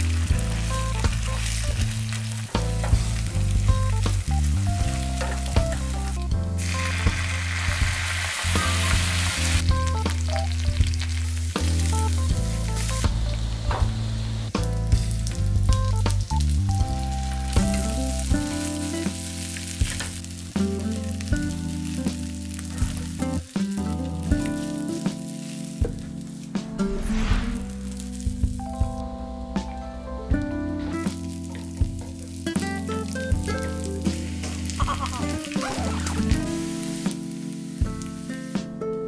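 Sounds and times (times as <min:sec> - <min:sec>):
sauce hissing on hot pan: 0:00.0 - 0:15.5, 0:32.2 - 0:38.5
egg sizzling in a frying pan: 0:00.0 - 0:26.5, 0:31.1 - 0:38.6.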